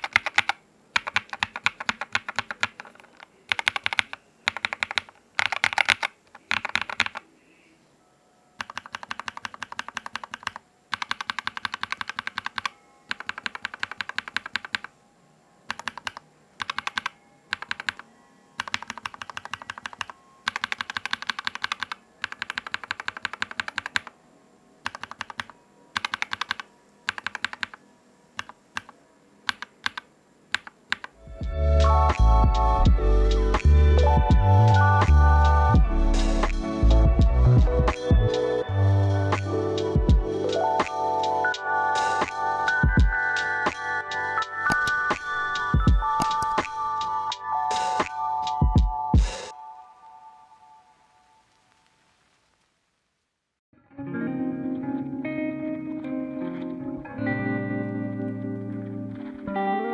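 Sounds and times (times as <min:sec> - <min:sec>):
typing on mechanical keyboard: 0:00.0 - 0:07.2, 0:08.6 - 0:14.9, 0:15.7 - 0:18.0, 0:18.6 - 0:24.1, 0:24.8 - 0:27.8, 0:28.4 - 0:31.2, 0:44.7 - 0:45.0, 0:46.1 - 0:46.7.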